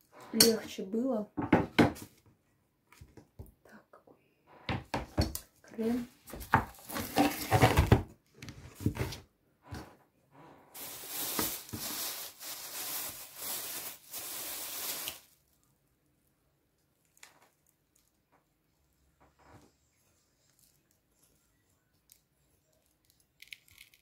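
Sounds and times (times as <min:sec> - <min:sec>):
knocks and clatter on counter: 0:01.4 - 0:02.0
plastic bag crinkling: 0:10.8 - 0:15.6.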